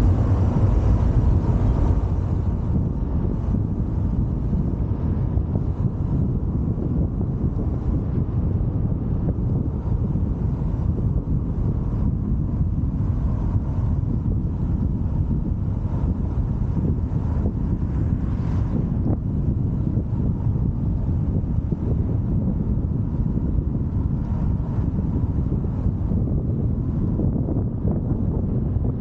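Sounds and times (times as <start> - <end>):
car interior rumble: 0.0 - 29.0.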